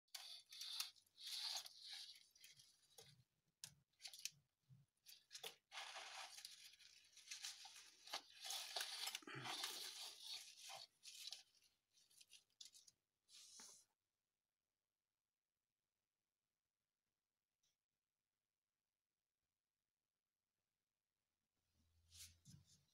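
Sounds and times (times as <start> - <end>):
leafy greens rustling: 5.1 - 12.8.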